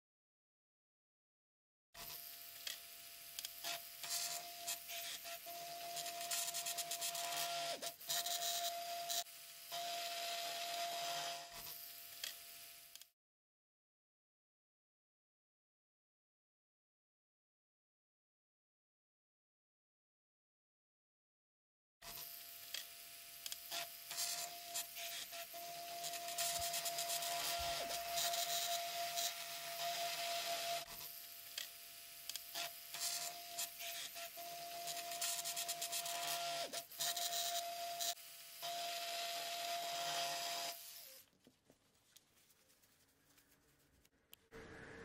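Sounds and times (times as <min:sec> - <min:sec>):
electric toothbrush motor whine: 0:02.0 - 0:13.2, 0:22.0 - 0:41.3
rough rubbing hiss: 0:41.8 - 0:45.0.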